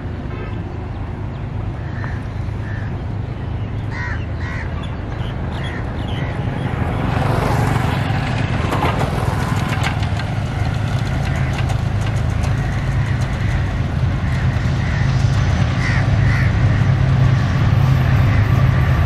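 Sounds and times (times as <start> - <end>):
diesel locomotive rumble: 0.0 - 19.0
motorcycles riding past: 5.2 - 19.0.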